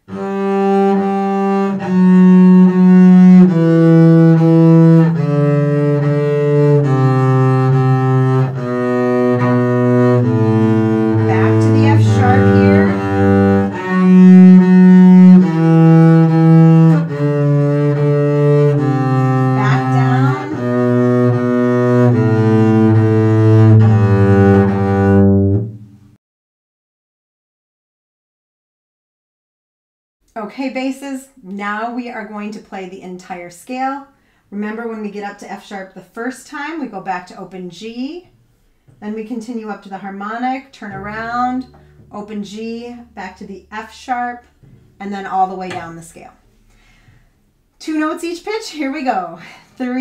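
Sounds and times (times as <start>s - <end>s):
bowed double bass scale: 0.0s - 26.2s, 38.2s - 49.2s.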